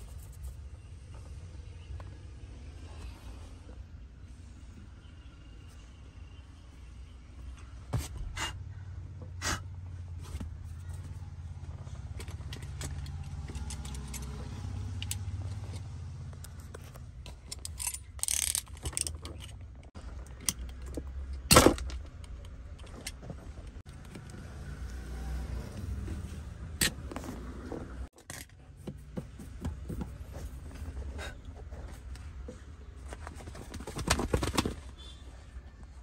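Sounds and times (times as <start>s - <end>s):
small metal and plastic clicks: 16.4s - 23.2s.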